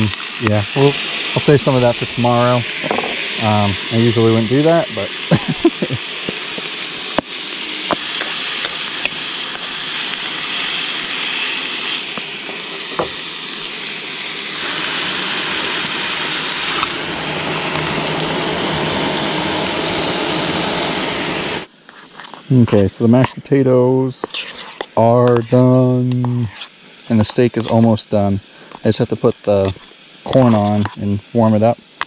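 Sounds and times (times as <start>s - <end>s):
food sizzling in a skillet: 0.0s - 21.7s, 23.3s - 32.0s.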